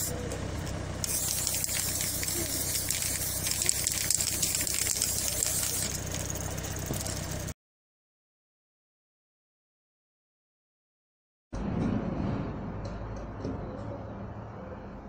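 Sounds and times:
steady low hum: 0.0s - 7.6s
spray-paint can hissing: 1.0s - 7.5s.

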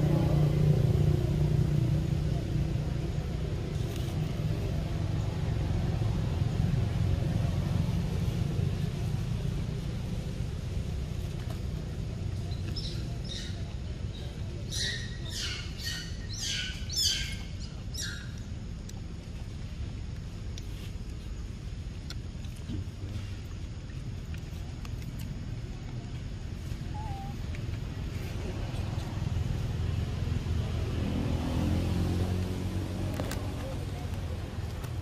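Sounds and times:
low background rumble: 0.0s - 35.0s
bird chirping: 12.5s - 18.5s.

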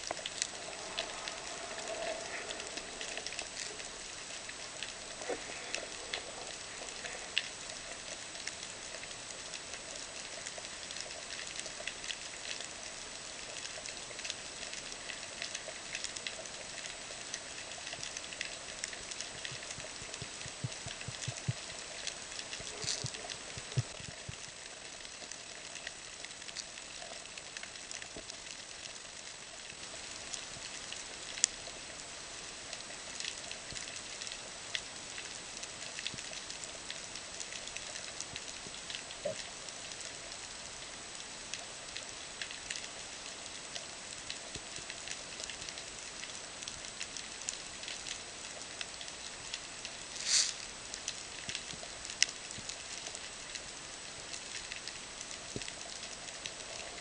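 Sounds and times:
underwater rush: 0.0s - 12.4s, 50.0s - 50.8s
snapping shrimp crackle: 20.7s - 24.3s, 50.0s - 51.8s.

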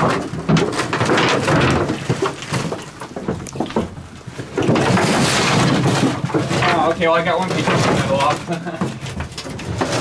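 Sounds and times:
dirt and straw scraping: 4.4s - 8.3s.

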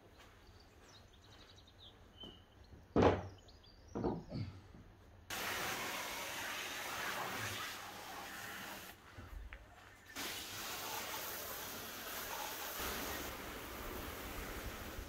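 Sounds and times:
hose nozzle spraying water: 5.3s - 9.0s, 10.0s - 15.0s.

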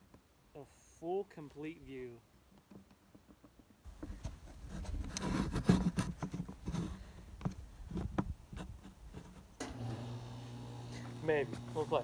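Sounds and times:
rustling and scraping at microphone: 2.5s - 9.6s.

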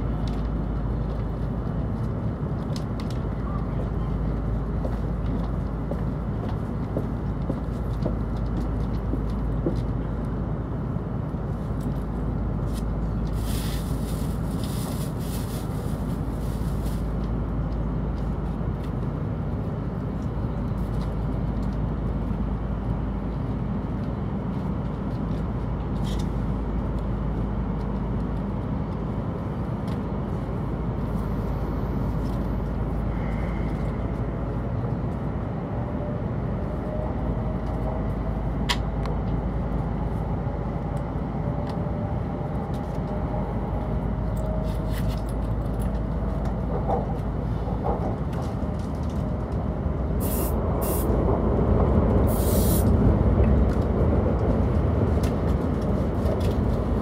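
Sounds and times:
train cabin rumble: 0.0s - 57.0s
rising train whine: 26.4s - 57.0s
hiss: 50.2s - 51.1s, 52.3s - 52.9s.

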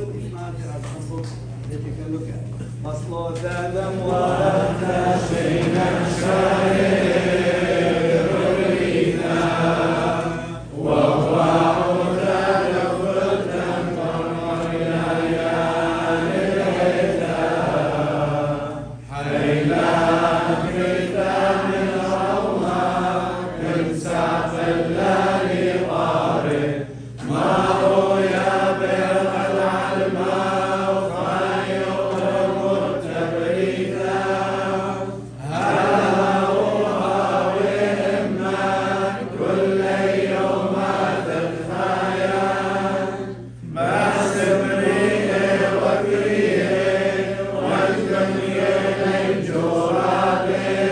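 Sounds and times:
steady low hum: 0.0s - 50.9s
liturgical chant singing: 3.1s - 50.9s.

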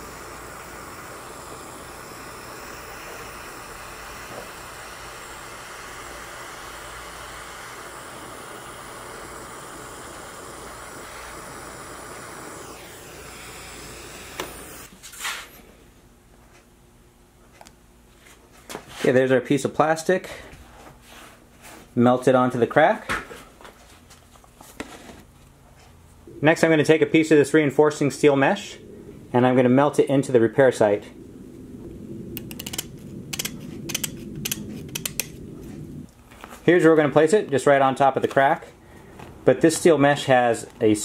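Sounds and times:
torch click: 0.0s - 14.9s, 32.3s - 35.4s
torch flame hissing: 0.0s - 15.5s, 26.3s - 41.0s.

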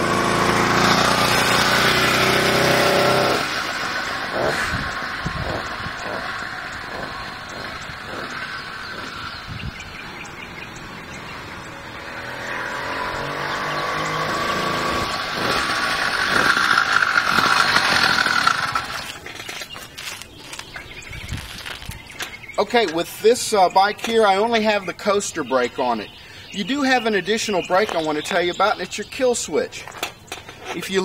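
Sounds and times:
two-stroke bicycle engine: 0.0s - 20.7s.

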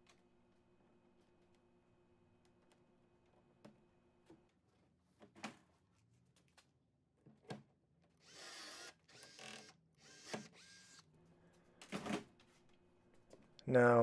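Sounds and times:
rivet gun motor whirring: 8.2s - 11.1s.

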